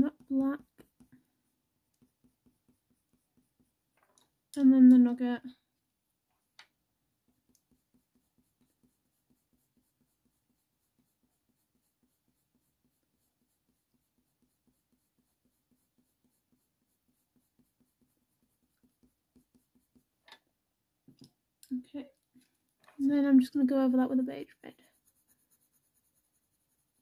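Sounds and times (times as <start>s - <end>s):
pencil scratching on paper: 0.0s - 4.0s, 7.2s - 20.2s, 24.4s - 27.0s.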